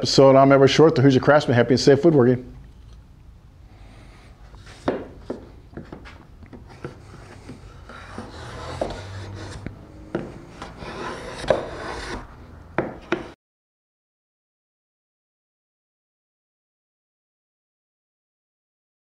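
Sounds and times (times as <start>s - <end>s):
hand plane cutting wood: 6.6s - 12.4s.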